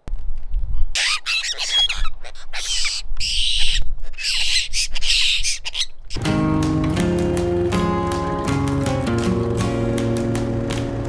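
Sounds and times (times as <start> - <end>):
birds screeching calls: 0.9 - 6.1.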